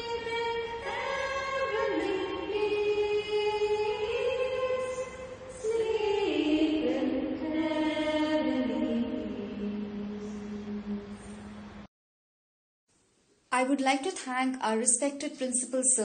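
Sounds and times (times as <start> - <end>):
person singing slowly: 0.0 - 11.8.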